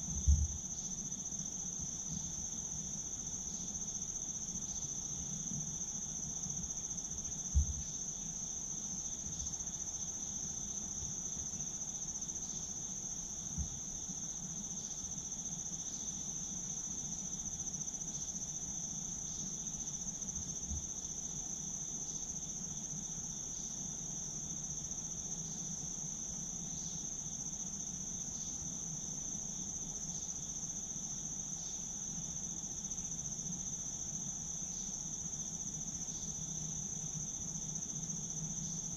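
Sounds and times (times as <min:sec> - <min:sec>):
high-pitched insect chorus: 0:00.0 - 0:38.9
soft low thump: 0:00.2 - 0:00.6, 0:07.5 - 0:07.9.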